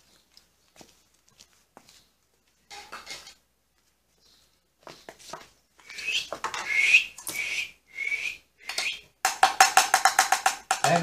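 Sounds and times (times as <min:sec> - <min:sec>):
bowl clicking on tile floor: 0:08.6 - 0:11.0.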